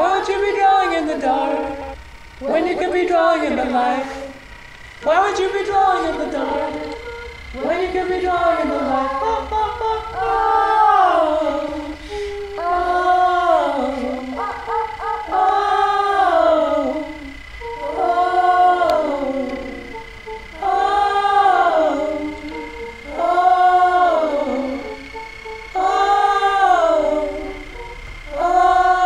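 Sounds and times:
thin steady high tone: 0.0s - 29.0s
wordless voices singing: 0.0s - 29.0s.

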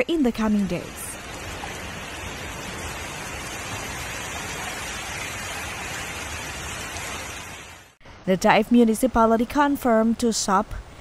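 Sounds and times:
floodwater rushing and splashing: 0.0s - 8.0s.

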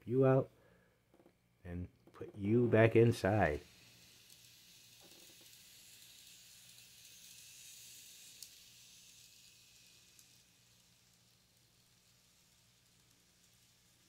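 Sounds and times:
model train hissing on track: 2.9s - 14.0s.

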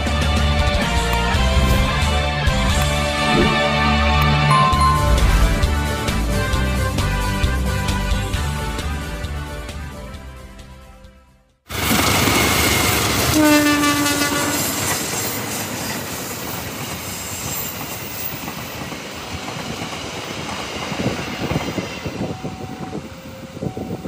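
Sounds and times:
train horn blast: 13.3s - 14.8s
train wheels clattering on rails: 14.5s - 22.8s.

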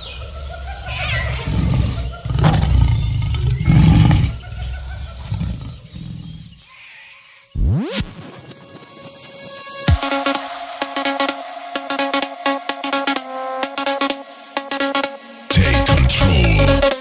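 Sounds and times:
distorted bass electronic music: 7.6s - 8.6s, 9.9s - 17.0s.

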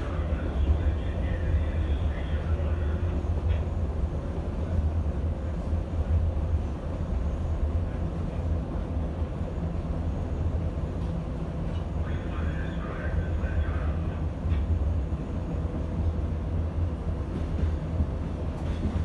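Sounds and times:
train running gear rumble: 0.0s - 19.0s.

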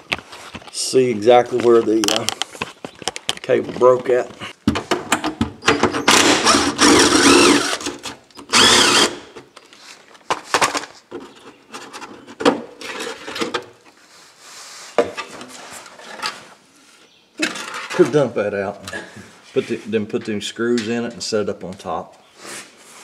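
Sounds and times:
cordless drill motor: 6.1s - 9.3s
knocks and scraping of cover: 10.2s - 13.9s, 17.4s - 18.3s.

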